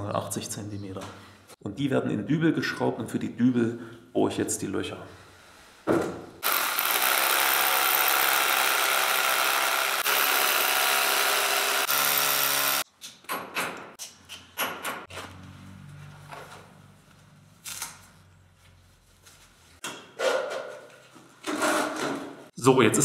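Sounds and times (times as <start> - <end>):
electric drill boring into concrete: 6.4 - 12.8.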